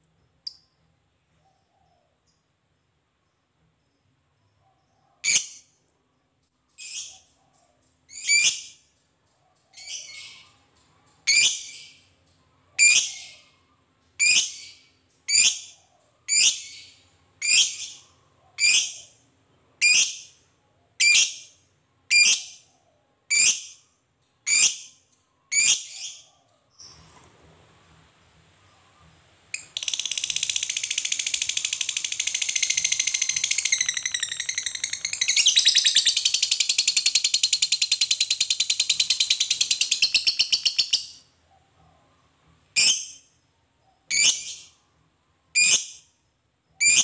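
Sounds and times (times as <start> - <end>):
lovebird shrill calls: 29.6 - 41.2.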